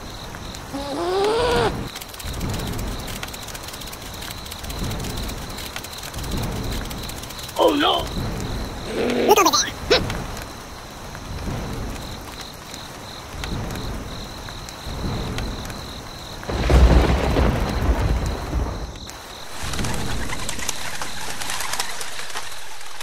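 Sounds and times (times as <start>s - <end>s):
rain: 0.0s - 23.0s
thunder rumbling: 0.1s - 21.4s
birds calling: 0.6s - 2.0s.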